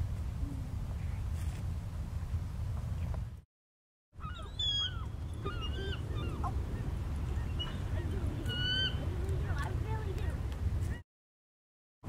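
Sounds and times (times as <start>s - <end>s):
eagle squeaky whistled calls: 4.2s - 9.1s.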